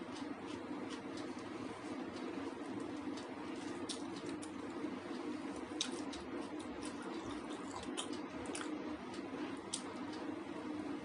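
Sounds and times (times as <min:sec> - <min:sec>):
steady low hum: 0:00.0 - 0:11.0
wet eating smacks: 0:02.2 - 0:10.2.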